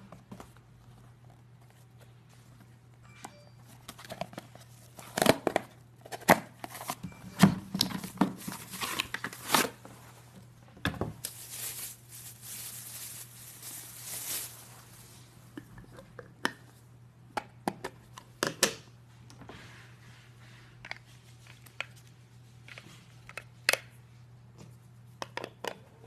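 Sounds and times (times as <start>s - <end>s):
plastic bag rustling: 7.8s - 10.2s, 11.0s - 15.4s
cardboard and plastic packaging tearing: 8.0s - 9.8s, 11.2s - 14.7s.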